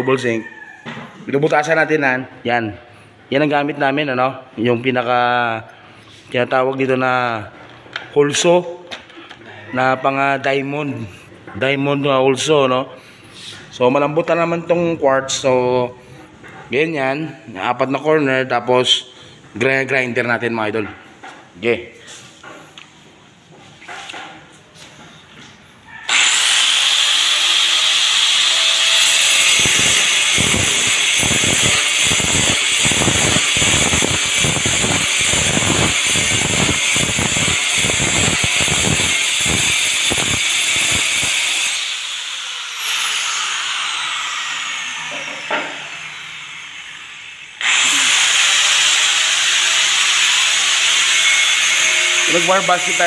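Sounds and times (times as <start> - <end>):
angle grinder cutting stone: 26.1 - 53.0.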